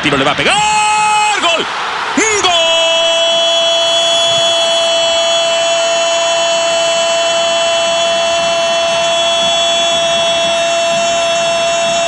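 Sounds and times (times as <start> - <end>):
stadium crowd celebrating: 0.0 - 12.0.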